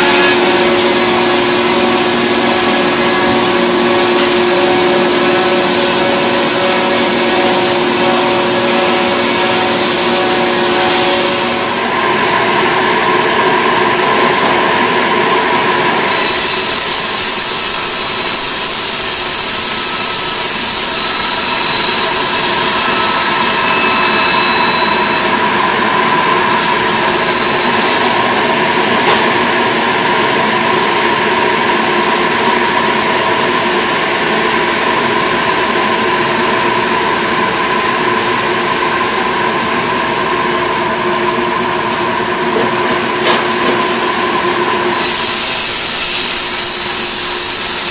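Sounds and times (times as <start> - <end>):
circular saw cutting log: 0.0 - 12.0, 16.0 - 28.4
mill machinery hum: 0.0 - 47.9.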